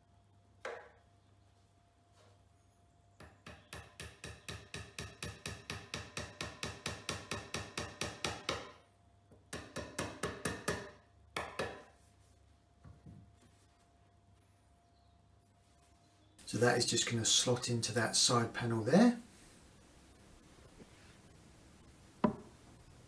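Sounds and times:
hammer tapping wooden dowels: 0.6 - 1.0, 3.2 - 12.0, 22.2 - 22.5.

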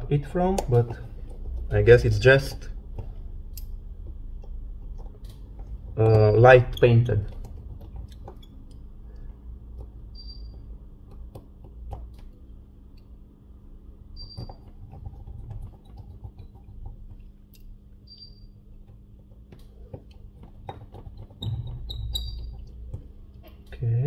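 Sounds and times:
steady low hum: 0.0 - 24.0
high squeaks: 21.4 - 22.8.

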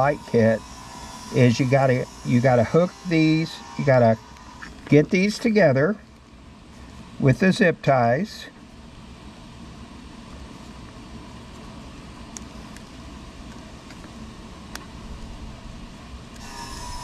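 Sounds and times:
steady background hiss: 0.0 - 17.0.

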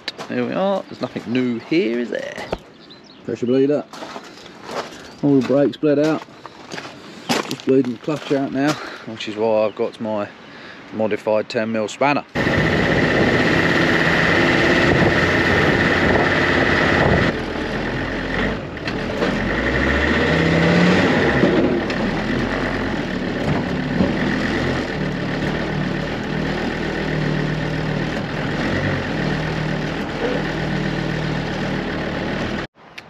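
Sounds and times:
race car engine running: 12.4 - 32.7
car engine idling: 21.3 - 32.7.

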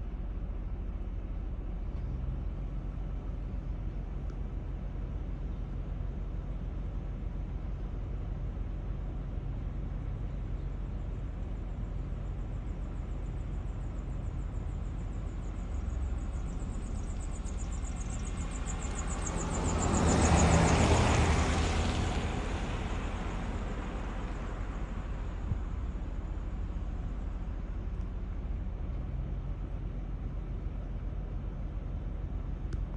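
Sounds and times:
low outdoor rumble: 0.0 - 32.9
vehicle passing: 18.1 - 25.4.

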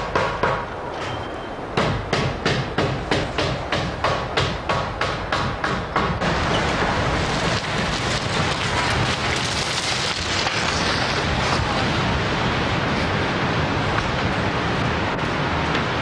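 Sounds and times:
hammer blows on timber: 1.8 - 6.4
wind buffeting microphone: 6.2 - 16.0.

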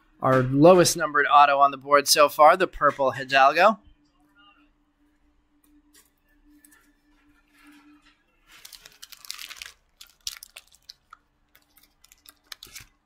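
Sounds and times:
card pack wrapper tearing: 8.5 - 13.0
cards clicking and rustling: 8.5 - 13.0.

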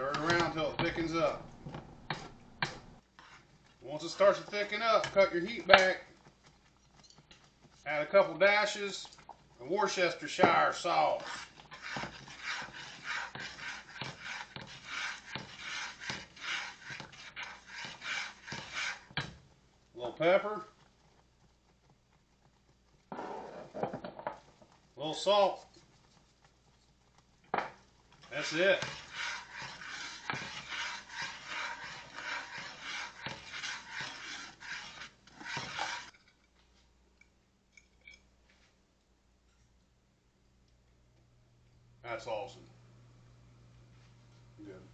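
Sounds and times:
metal spatula scraping a skillet: 0.0 - 1.4, 2.1 - 9.2, 9.9 - 19.4, 28.2 - 36.5.

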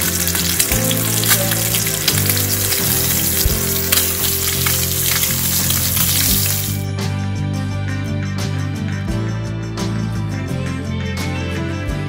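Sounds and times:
fish frying in hot oil: 0.0 - 6.8
background music: 0.0 - 12.0.

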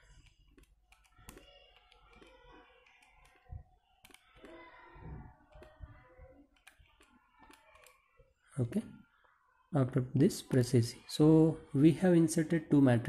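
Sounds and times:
calculator keys clicking: 0.0 - 4.6.

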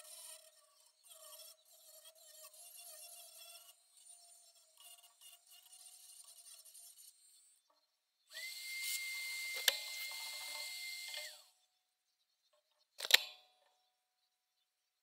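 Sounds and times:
rotary tool whining: 0.0 - 11.6, 13.0 - 13.3.

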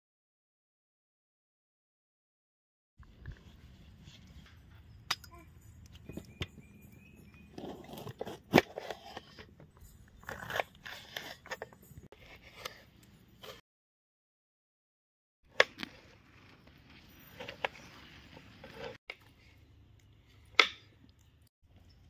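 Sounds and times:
knife scraping board: 7.6 - 9.5, 10.2 - 13.6, 17.4 - 19.0.

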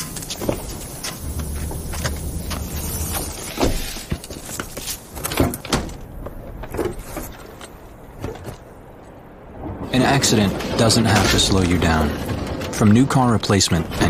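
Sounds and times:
steady hiss: 0.0 - 6.1.

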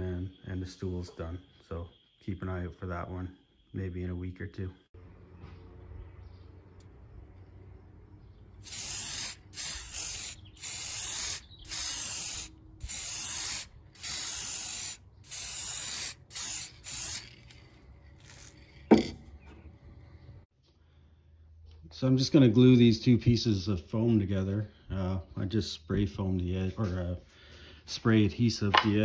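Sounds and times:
aerosol spray hissing: 8.6 - 17.6.

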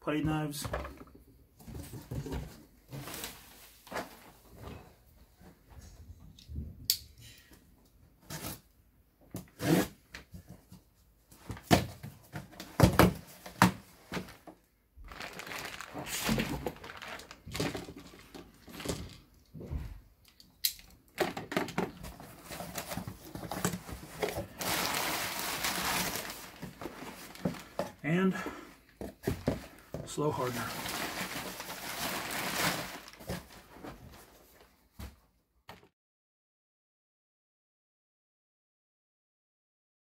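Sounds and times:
paper and plastic rustling: 1.7 - 4.9, 11.4 - 19.3, 21.2 - 28.0, 29.0 - 34.7.

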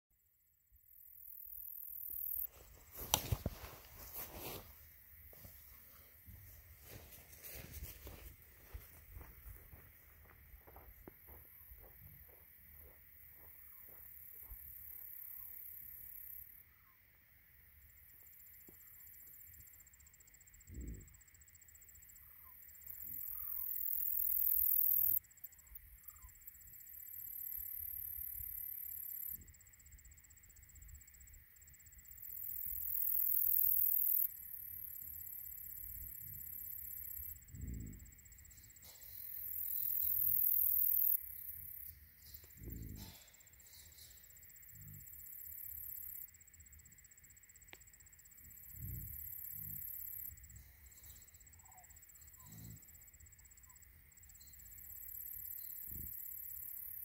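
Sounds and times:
steady insect drone: 0.2 - 57.0
insects buzzing in swells: 0.9 - 57.0
bison grunts: 42.5 - 43.5.

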